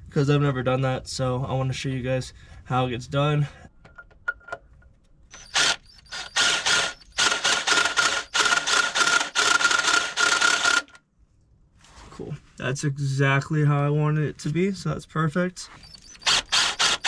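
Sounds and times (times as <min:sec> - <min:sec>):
power drill bursts: 0:05.3 - 0:11.0, 0:15.8 - 0:17.0.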